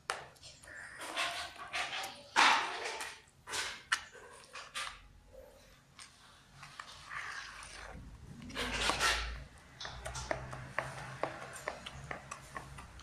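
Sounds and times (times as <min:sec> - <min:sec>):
hand squishing wet dough: 0:05.8 - 0:13.0.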